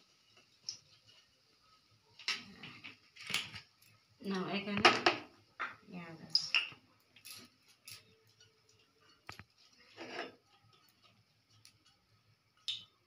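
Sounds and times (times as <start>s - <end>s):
metal spatula scraping metal plate: 9.7s - 10.4s.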